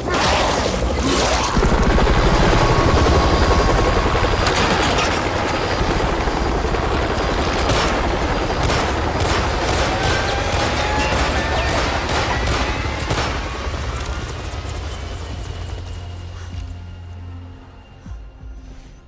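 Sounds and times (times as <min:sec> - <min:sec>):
helicopter rotor beating: 0:00.0 - 0:17.8
gunfire: 0:07.6 - 0:08.0, 0:08.6 - 0:13.5
pistol shots: 0:08.6 - 0:13.4.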